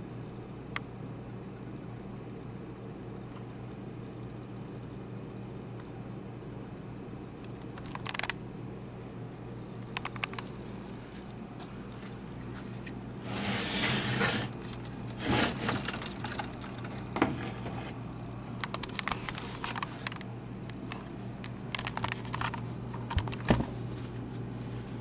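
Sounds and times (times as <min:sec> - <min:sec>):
sharp clicks and taps: 0:09.9 - 0:10.5, 0:18.6 - 0:23.5.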